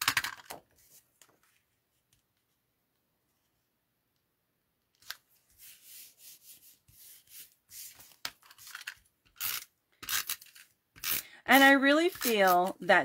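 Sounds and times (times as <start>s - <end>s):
paper rustling and rubbing: 5.3s - 9.6s.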